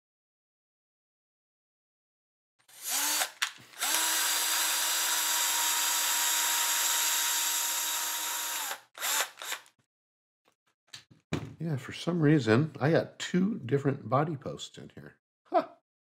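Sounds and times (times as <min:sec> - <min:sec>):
electric screwdriver motor whine: 0:02.6 - 0:09.7
screwdriver click: 0:02.8 - 0:04.3.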